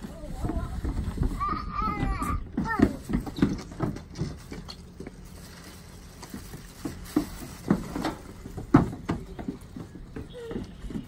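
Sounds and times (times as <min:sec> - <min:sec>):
footsteps on wooden ramp: 0:00.0 - 0:05.2, 0:06.3 - 0:11.0
heavy bags thumping: 0:06.2 - 0:11.0.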